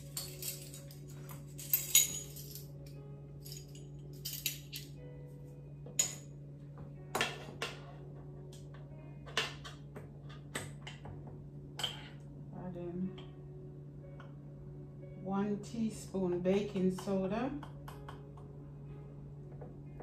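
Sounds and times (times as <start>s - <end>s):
metal measuring spoons jangling: 0.0s - 5.0s
steady low hum: 0.0s - 20.0s.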